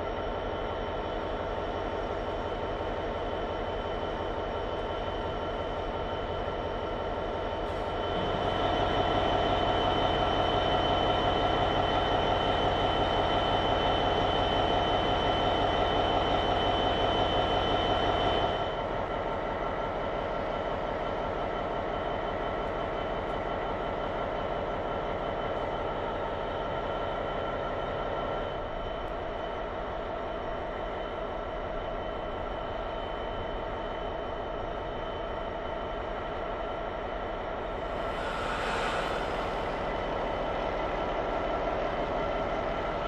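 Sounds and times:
diesel locomotive engine idling: 34.8 - 43.0
high-pitched hum: 37.6 - 41.3.

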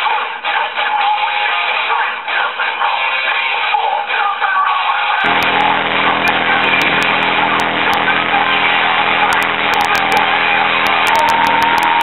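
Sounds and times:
small engine humming: 5.2 - 12.0.

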